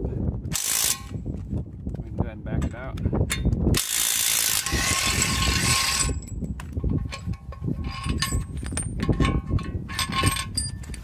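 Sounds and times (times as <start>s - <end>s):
impact wrench running: 0.5s - 1.2s, 3.8s - 6.3s
metal clicks and knocks: 1.9s - 3.7s, 6.1s - 11.0s.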